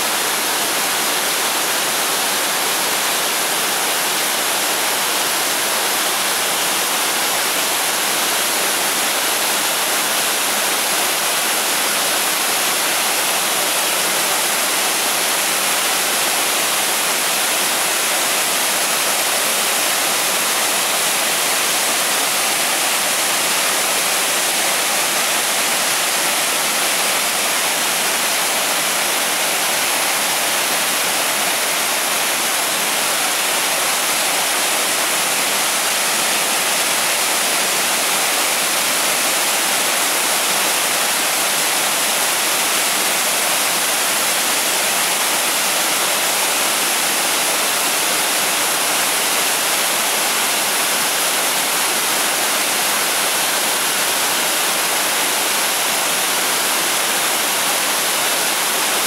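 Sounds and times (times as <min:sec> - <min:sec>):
small waterfall splashing: 0:00.0 - 0:59.0.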